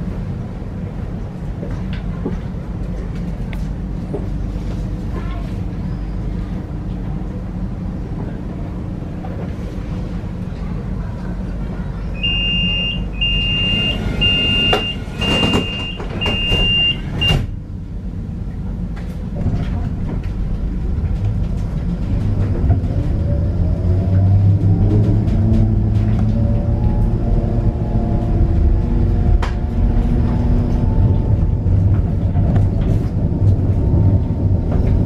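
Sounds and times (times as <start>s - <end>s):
tram humming: 0.0s - 35.0s
high warning beeps: 12.2s - 17.4s.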